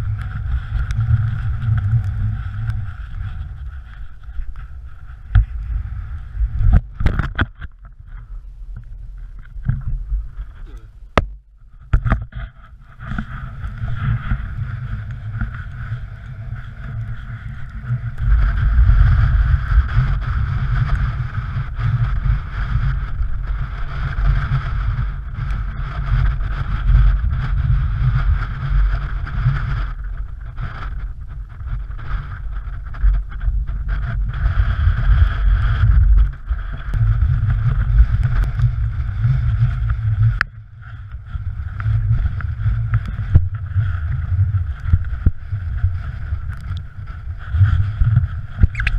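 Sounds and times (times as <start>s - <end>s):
gusty wind buffeting microphone: 0.0s - 48.9s.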